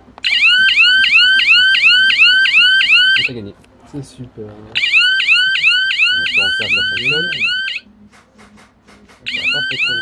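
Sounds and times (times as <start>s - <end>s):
warbling electronic siren: 0.2s - 3.4s, 4.8s - 7.8s, 9.3s - 10.0s.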